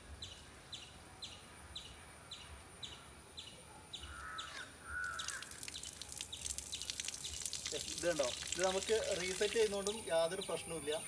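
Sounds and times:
bird chirping: 0:00.0 - 0:11.0
bird calling: 0:04.0 - 0:07.5
water jet splashing: 0:05.1 - 0:10.1.

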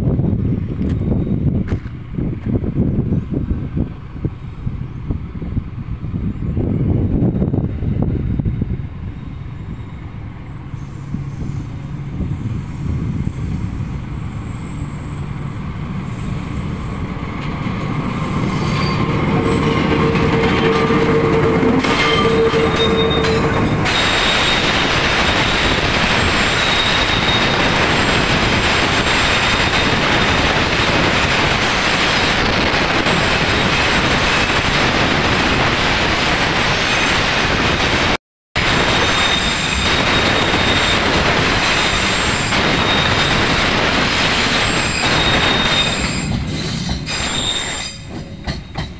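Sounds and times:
locomotive engine rumble: 0:00.2 - 0:33.6.

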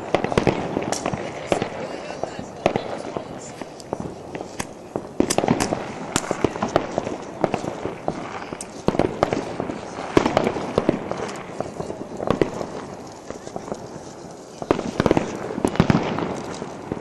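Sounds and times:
fireworks and firecrackers banging: 0:00.0 - 0:17.0.

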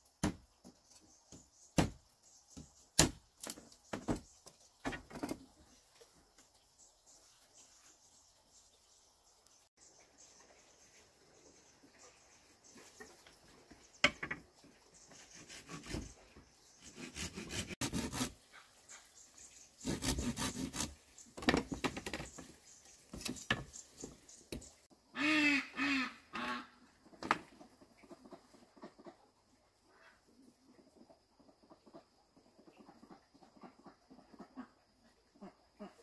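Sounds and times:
duck quacking: 0:25.2 - 0:26.8.

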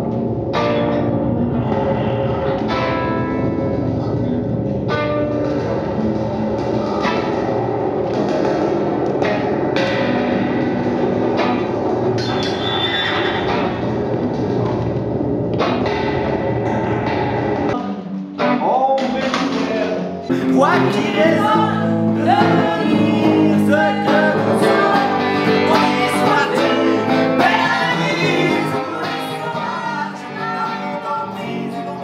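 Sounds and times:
plucked acoustic guitar: 0:00.0 - 0:32.0
person singing: 0:20.3 - 0:32.0.

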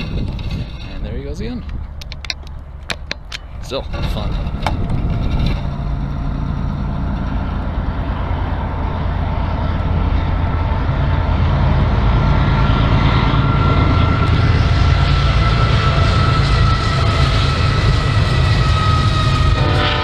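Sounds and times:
wind buffeting microphone: 0:00.0 - 0:20.0
steady high tone: 0:05.7 - 0:20.0.

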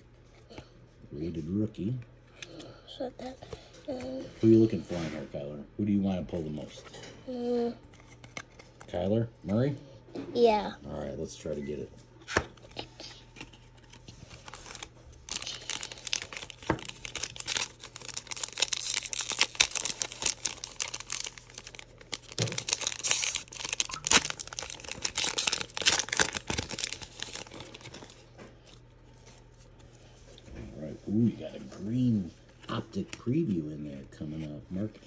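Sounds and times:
cards rustling in wrapper: 0:07.8 - 0:09.0, 0:12.6 - 0:30.1
foil pack crinkling: 0:12.7 - 0:30.1.

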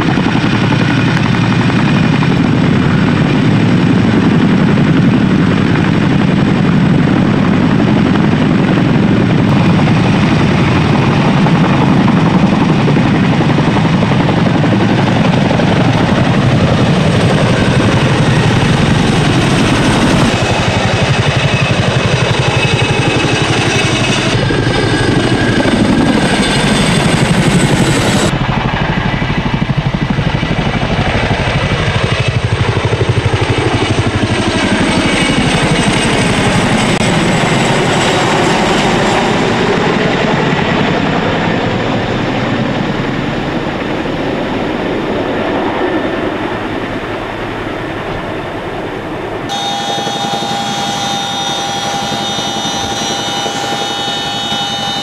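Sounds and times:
high turbine whine: 0:00.0 - 0:30.3, 0:48.9 - 0:55.0
helicopter rotors chopping: 0:00.0 - 0:47.4, 0:49.0 - 0:55.0
helicopter engine noise: 0:00.0 - 0:55.0.

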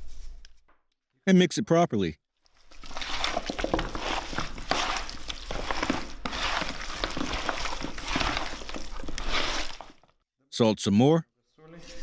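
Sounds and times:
hands mixing chicken in plastic bowl: 0:02.4 - 0:10.1.

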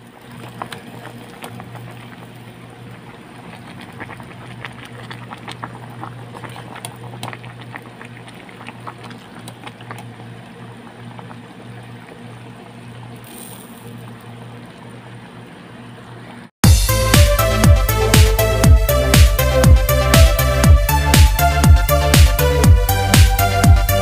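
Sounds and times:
broth boiling in a pot: 0:00.0 - 0:16.5
steady low hum: 0:00.0 - 0:24.0
bubbles bursting: 0:00.2 - 0:13.2.

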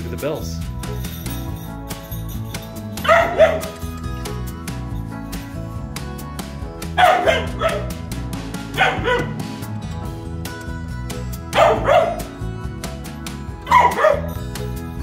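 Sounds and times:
background music with beat: 0:00.0 - 0:15.0
puppy barking: 0:03.0 - 0:03.8, 0:07.0 - 0:08.0, 0:08.6 - 0:09.4, 0:11.5 - 0:12.3, 0:13.6 - 0:14.4.

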